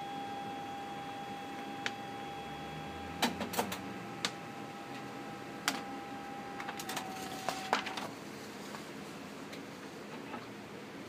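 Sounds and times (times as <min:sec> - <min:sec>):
printer motor whine: 0:00.0 - 0:08.1.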